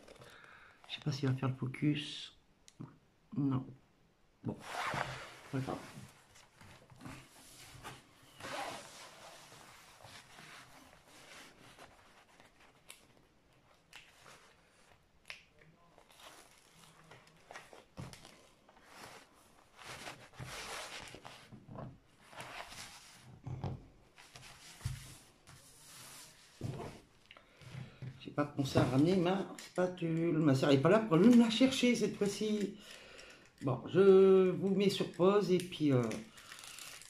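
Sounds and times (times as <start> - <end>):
canvas and paper rustling: 4.6 - 15.1, 15.9 - 23.5, 24.1 - 27.1.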